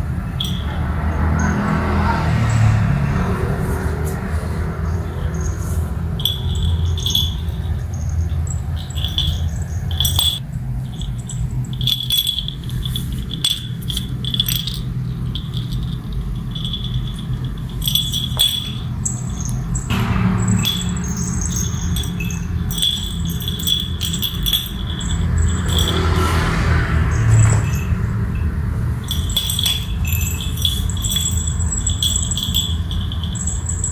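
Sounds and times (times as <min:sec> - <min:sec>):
collar bell jingling: 0:00.0 - 0:33.9
low steady hum: 0:05.0 - 0:25.9.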